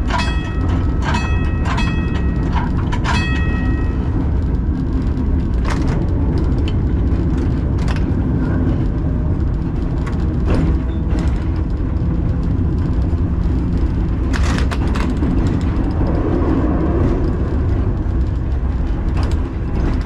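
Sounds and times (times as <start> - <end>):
tram bell ringing: 0.0 - 5.1
tram rumbling along track: 0.0 - 20.0
wheels clicking over rail joints: 0.0 - 20.0.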